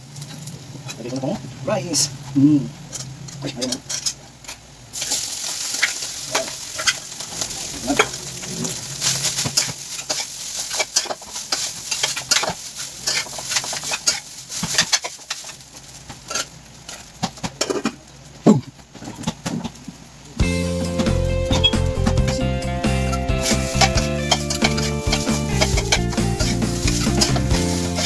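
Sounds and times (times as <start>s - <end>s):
food sizzling in a wok: 0.0s - 28.0s
utensil scraping a pan: 5.0s - 15.6s, 23.2s - 28.0s.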